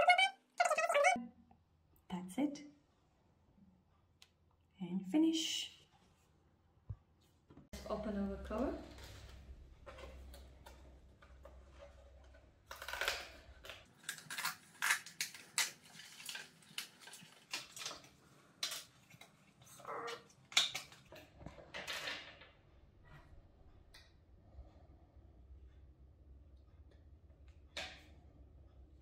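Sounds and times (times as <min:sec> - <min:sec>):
packaging rustling: 0:12.7 - 0:19.3.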